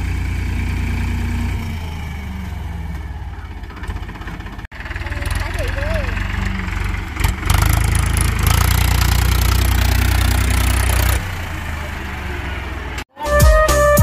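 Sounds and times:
tractor diesel engine running: 0.0s - 13.1s
music: 13.1s - 14.0s.

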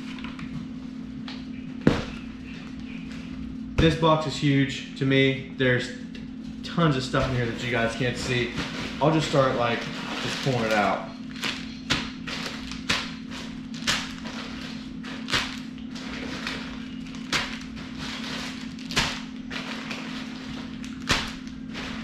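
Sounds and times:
plastic bags crinkling: 7.2s - 22.0s.

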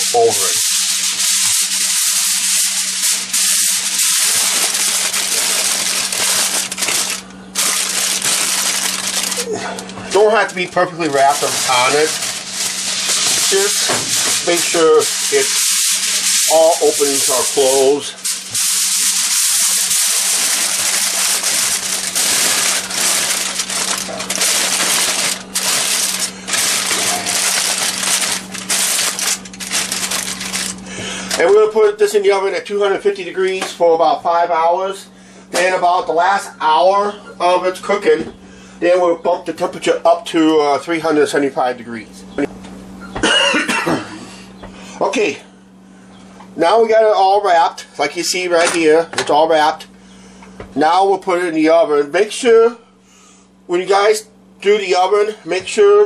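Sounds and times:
aluminium foil crinkling: 0.0s - 31.5s.

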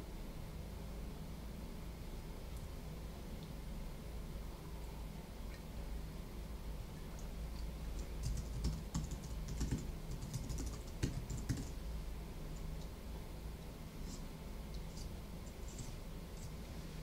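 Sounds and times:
steady low hum: 0.0s - 17.0s
computer keyboard typing: 8.0s - 11.8s.

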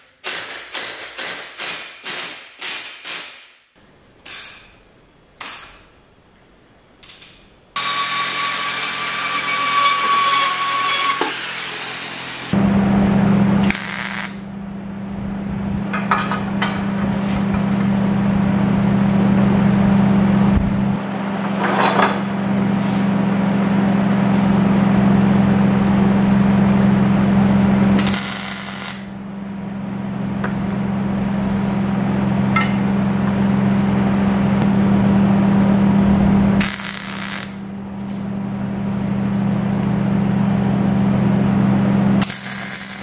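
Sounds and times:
low hum: 11.7s - 43.0s
arc welding crackle: 13.6s - 14.6s, 28.0s - 29.2s, 36.6s - 37.7s, 42.2s - 43.0s.

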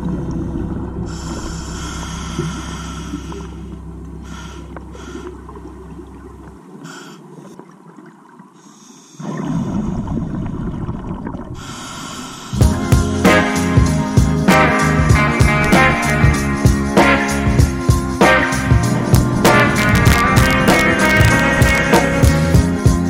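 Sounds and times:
regulator hissing inhalations: 1.1s - 5.4s, 6.8s - 7.4s, 11.6s - 12.6s
exhaled bubbles rushing: 9.2s - 11.9s.

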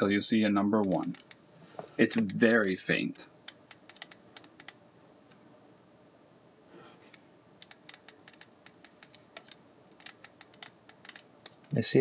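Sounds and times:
ratchet clicking of film crank: 0.8s - 1.4s, 3.5s - 4.7s, 7.6s - 11.2s.

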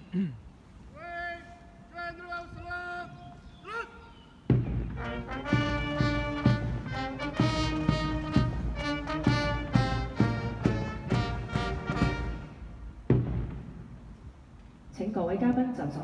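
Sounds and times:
person shouting parade command: 0.9s - 4.2s, 5.0s - 8.3s
brass band playing: 4.9s - 13.1s.

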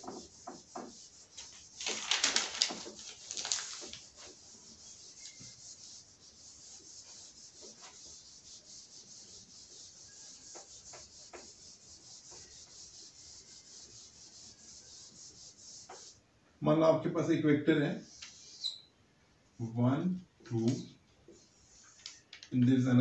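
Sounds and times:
eraser wiping whiteboard: 0.0s - 1.8s, 2.6s - 16.2s, 17.9s - 18.9s, 21.3s - 22.2s.

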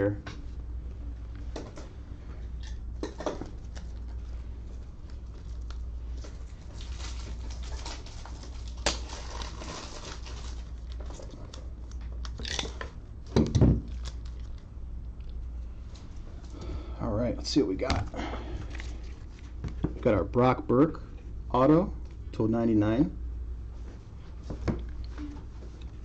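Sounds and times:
cards and plastic holders rustling: 5.1s - 12.8s.

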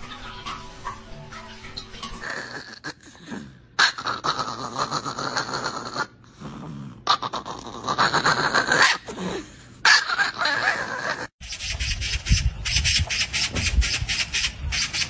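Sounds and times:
small dog growling: 2.2s - 9.4s.

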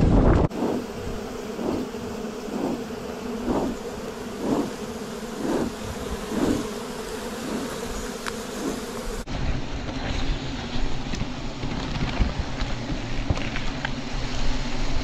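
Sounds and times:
bee swarm buzzing: 0.2s - 15.0s
smoker puffs whooshing: 0.5s - 6.8s.

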